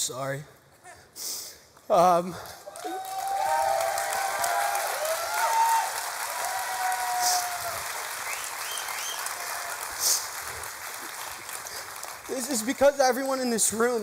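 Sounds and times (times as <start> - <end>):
audience applauding and cheering: 2.4 - 14.0.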